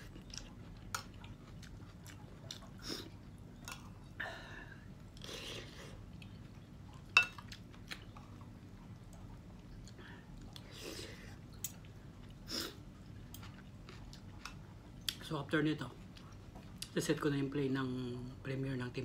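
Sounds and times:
person chewing: 0:00.0 - 0:04.2, 0:05.0 - 0:15.2.

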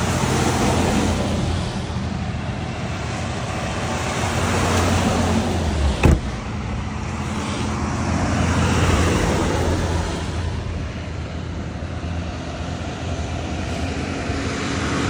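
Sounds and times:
buses driving past: 0:00.0 - 0:15.0
brief knock: 0:06.0 - 0:06.4.

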